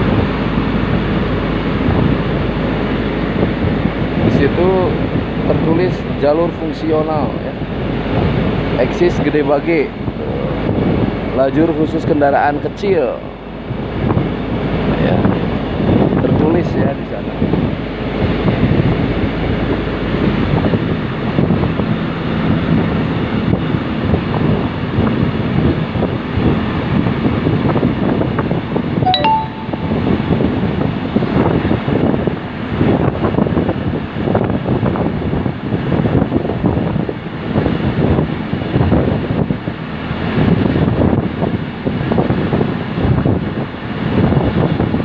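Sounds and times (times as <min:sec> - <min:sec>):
wind buffeting microphone: 0:00.0 - 0:29.0, 0:29.8 - 0:45.0
rail vehicle rumbling on track: 0:00.0 - 0:45.0
ringing ding: 0:29.1 - 0:30.2.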